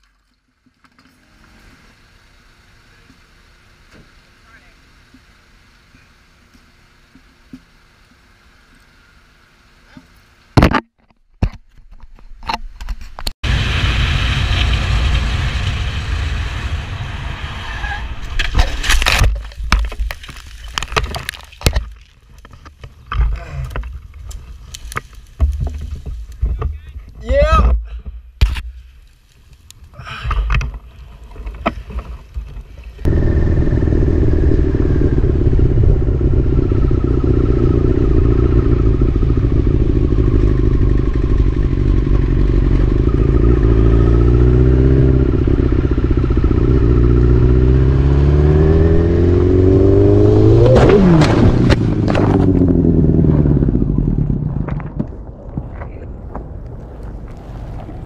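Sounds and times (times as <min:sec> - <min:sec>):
crash impacts and scraping: 0:10.6 - 0:29.6, 0:50.6 - 0:58.0
motorcycle engine accelerating: 0:33.0 - 0:55.3.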